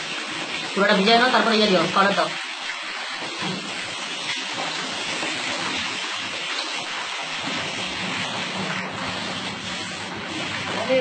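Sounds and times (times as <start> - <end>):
water spray hissing from hose nozzle: 3.2 - 11.0.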